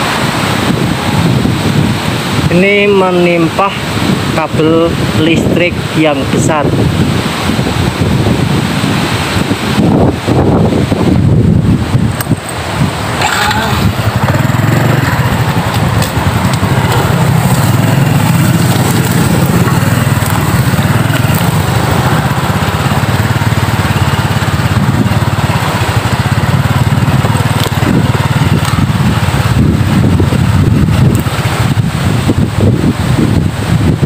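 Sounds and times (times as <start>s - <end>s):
gusty wind buffeting microphone: 0.0s - 34.0s.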